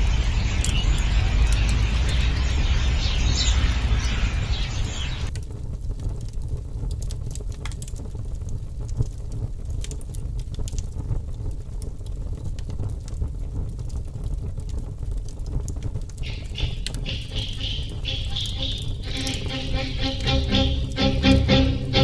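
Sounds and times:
light crackles and ticks: 0.0 - 2.6, 5.3 - 21.5
steady low rumble: 16.2 - 22.0.

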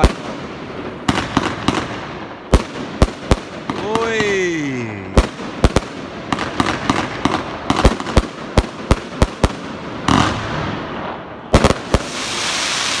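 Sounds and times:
firework bangs: 0.0 - 13.0
hissing crackle: 11.8 - 13.0.

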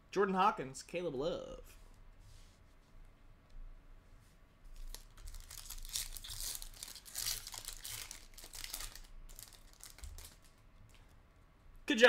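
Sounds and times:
foil wrapper tearing and crinkling: 4.8 - 10.6.

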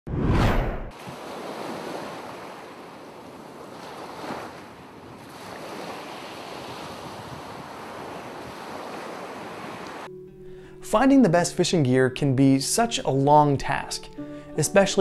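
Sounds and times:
ocean waves washing: 0.4 - 10.1.

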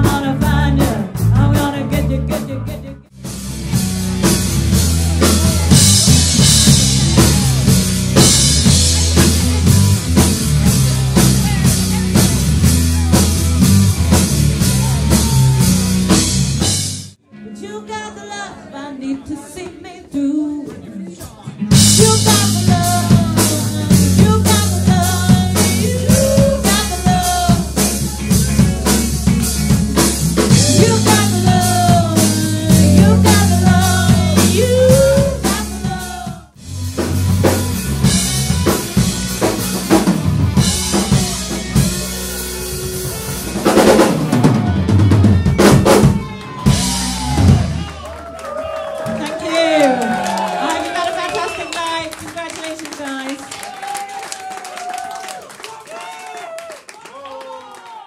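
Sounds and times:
woman singing lead: 0.0 - 3.1, 17.3 - 28.6, 30.5 - 36.5
pop-rock band playing: 0.0 - 18.3, 21.2 - 53.2.

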